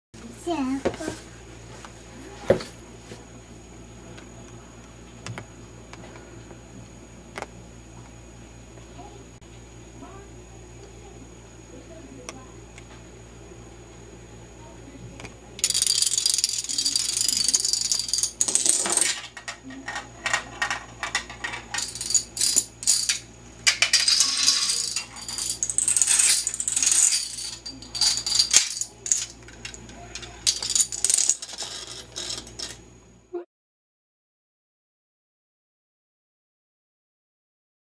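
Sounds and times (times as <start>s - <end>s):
dominoes toppling clatter: 15.6s - 32.8s.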